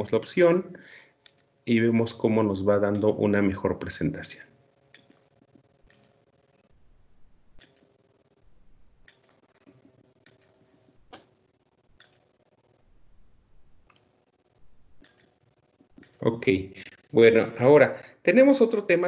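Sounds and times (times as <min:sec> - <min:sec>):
faint steady hum: 0:00.0 - 0:19.0
computer mouse clicking: 0:01.2 - 0:01.5, 0:04.9 - 0:06.2, 0:07.6 - 0:07.9, 0:09.0 - 0:11.3, 0:11.9 - 0:12.5, 0:13.8 - 0:14.1, 0:15.0 - 0:16.2.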